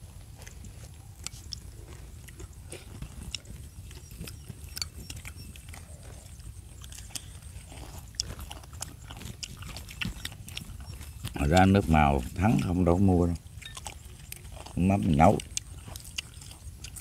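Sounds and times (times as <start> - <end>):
chewing: 0.0 - 17.0
low steady rumble: 0.0 - 17.0.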